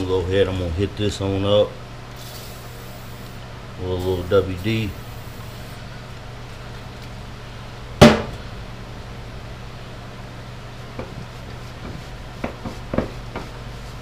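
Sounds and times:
steady low hum: 0.0s - 14.0s
sharp knock: 8.0s - 8.3s.

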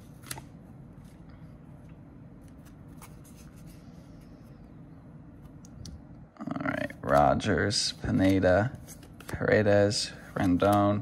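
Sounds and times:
cards flipped by hand: 0.0s - 1.2s, 10.3s - 11.0s
low steady hum: 0.0s - 11.0s.

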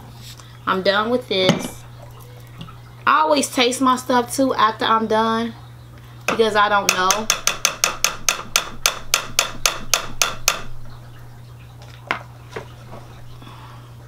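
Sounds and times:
metal spoon knocking on pot: 6.3s - 10.8s.

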